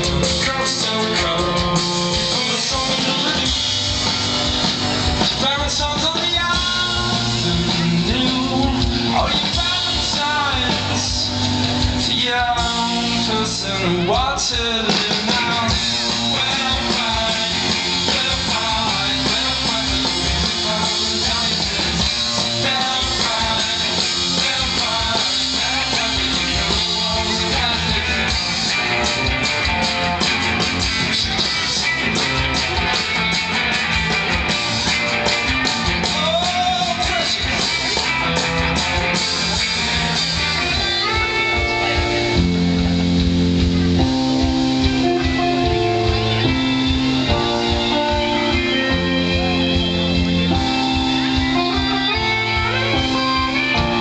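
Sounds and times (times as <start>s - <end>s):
live band with guitars: 0.0s - 54.0s.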